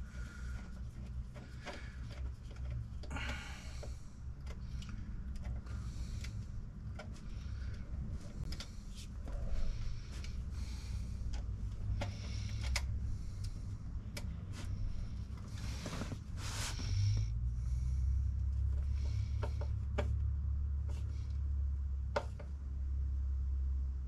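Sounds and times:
steady low hum: 0:00.0 - 0:24.0
tool clicking on wire connections: 0:11.2 - 0:14.3.

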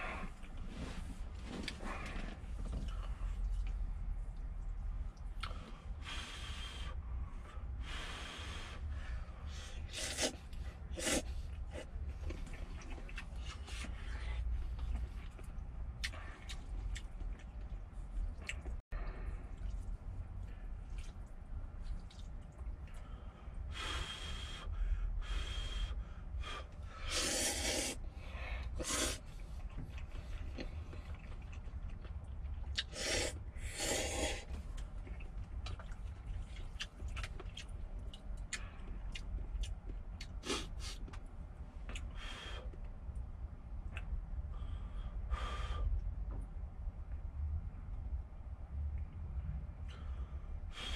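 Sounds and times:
person breathing: 0:00.0 - 0:03.4, 0:05.4 - 0:11.9, 0:22.9 - 0:29.3, 0:42.1 - 0:42.8, 0:44.5 - 0:46.0, 0:49.9 - 0:50.9
low steady rumble: 0:00.0 - 0:50.9
person slurping noodles: 0:09.9 - 0:10.4, 0:11.0 - 0:11.9, 0:27.1 - 0:28.0, 0:32.8 - 0:34.5.

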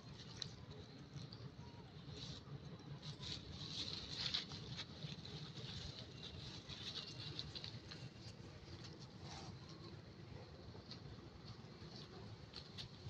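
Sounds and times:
dry leaves rustling: 0:02.1 - 0:09.9.

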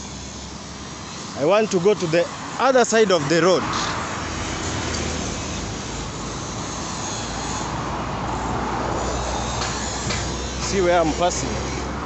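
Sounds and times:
heavy vehicle engine hum: 0:00.0 - 0:12.0
road traffic passing: 0:00.0 - 0:12.0.

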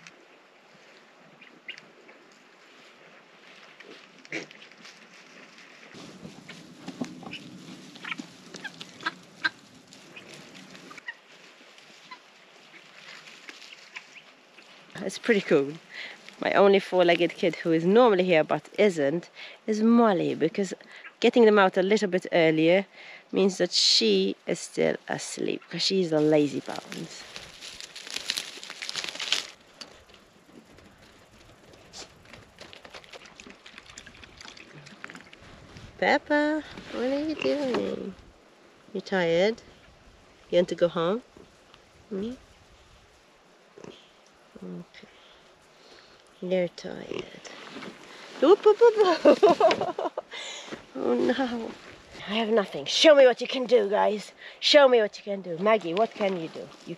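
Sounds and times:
dry grass crackling underfoot: 0:00.9 - 0:18.3, 0:25.1 - 0:38.5, 0:39.7 - 0:53.7
guinea fowl clucking calls: 0:07.2 - 0:09.6, 0:10.9 - 0:11.2.

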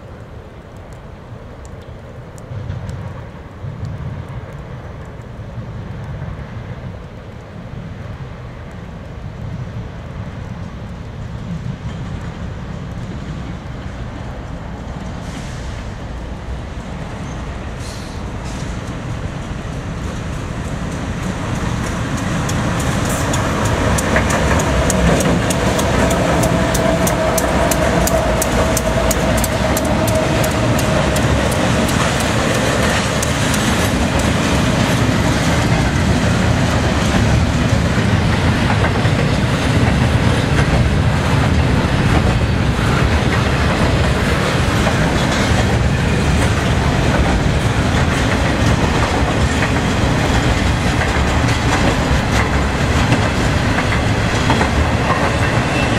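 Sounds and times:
freight train passing: 0:00.0 - 0:55.9
wheels clattering on rails: 0:11.4 - 0:55.9.

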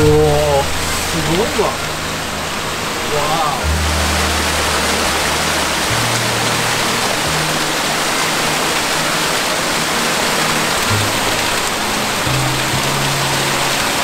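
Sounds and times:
low background music: 0:00.0 - 0:14.0
stream rushing over rocks: 0:00.0 - 0:14.0.

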